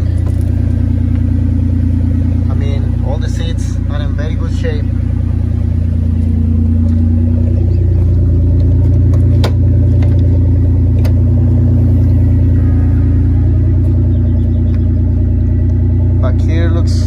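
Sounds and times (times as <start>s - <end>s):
engine idling with exhaust drone: 0.0s - 17.0s.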